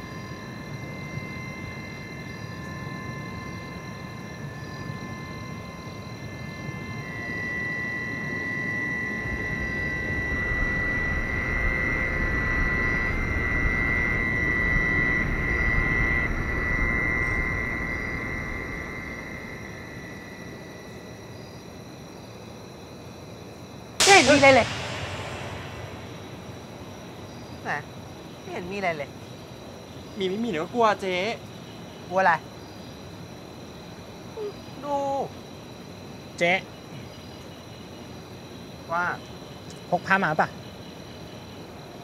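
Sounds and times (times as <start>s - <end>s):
thin sustained high tones: 0.0s - 21.6s, 24.0s - 27.8s
low rumble: 24.0s - 27.3s.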